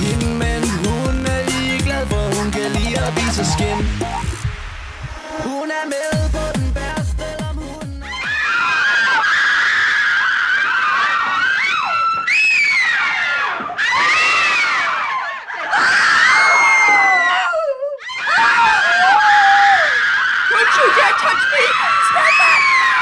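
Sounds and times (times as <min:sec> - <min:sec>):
music with deep sliding bass: 0:00.0 - 0:05.6, 0:06.2 - 0:08.1.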